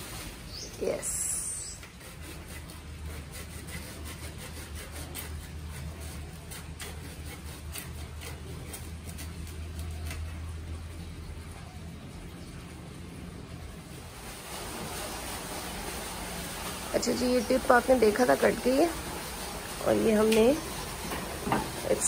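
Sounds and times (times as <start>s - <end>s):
low steady hum: 0.0s - 22.0s
hand saw cutting a stem: 1.7s - 10.4s.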